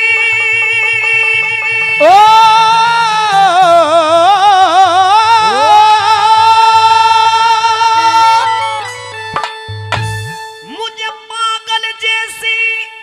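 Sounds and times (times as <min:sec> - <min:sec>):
man singing long note: 0:00.0 - 0:08.9
instrumental accompaniment with beat: 0:07.0 - 0:12.8.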